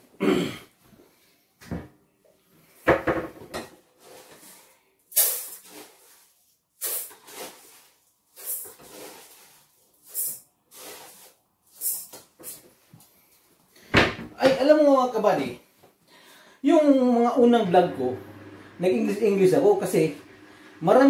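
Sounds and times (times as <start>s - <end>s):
dry rice pouring into pot: 4.0s - 11.9s.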